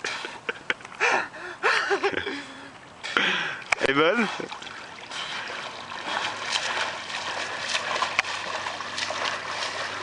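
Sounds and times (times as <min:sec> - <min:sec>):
swimmer splashing in water: 0:04.5 - 0:10.0.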